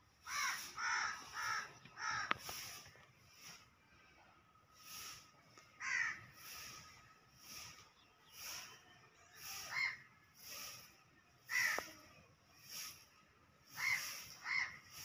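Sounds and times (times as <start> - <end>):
crow cawing: 0.2 - 2.5, 5.8 - 6.6, 9.6 - 10.0, 11.5 - 12.0, 13.7 - 15.0.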